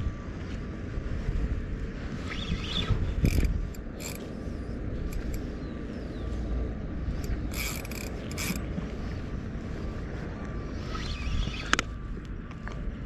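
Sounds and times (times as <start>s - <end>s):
wind rumble on microphone: 0.0s - 13.0s
fishing reel clicking: 2.2s - 4.3s, 5.0s - 5.4s, 7.1s - 8.6s.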